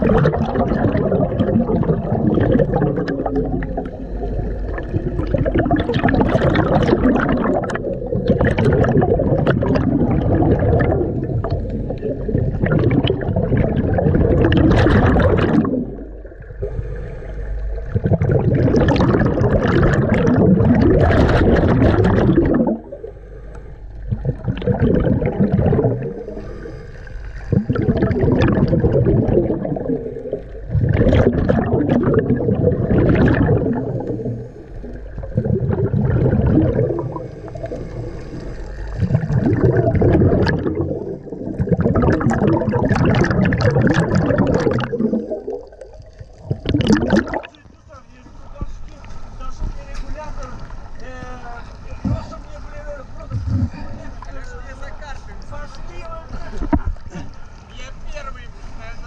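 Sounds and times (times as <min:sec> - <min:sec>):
regulator exhale bubbling: 0:00.0 - 0:47.8, 0:53.3 - 0:54.3.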